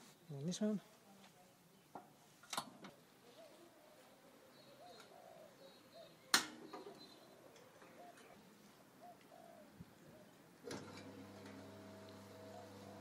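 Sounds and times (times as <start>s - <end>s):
doves cooing: 3.2s - 10.4s, 11.6s - 13.0s
electric motor humming: 10.7s - 13.0s.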